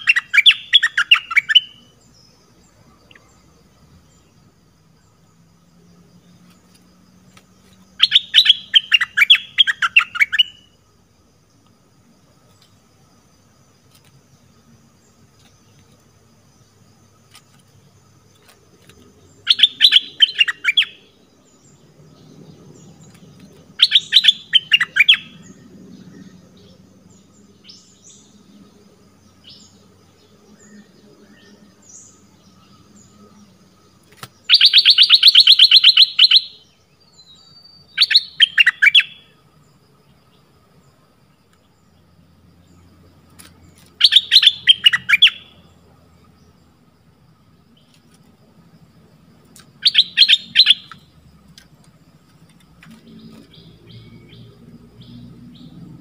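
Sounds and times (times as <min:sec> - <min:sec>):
bird calling in rapid bursts: 0:00.0 - 0:01.9, 0:08.0 - 0:10.7, 0:19.5 - 0:21.1, 0:23.7 - 0:25.4, 0:34.4 - 0:36.7, 0:38.0 - 0:39.2, 0:44.0 - 0:45.5, 0:49.8 - 0:51.0.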